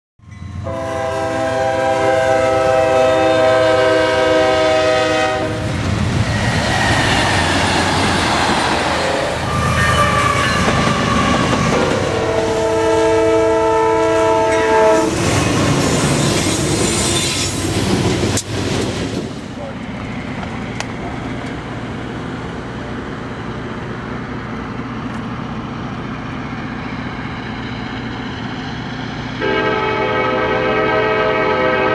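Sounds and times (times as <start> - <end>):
train rumble and wheel clatter: 0.2 - 31.9
locomotive air horn: 0.6 - 5.7, 9.0 - 15.2, 29.4 - 31.9.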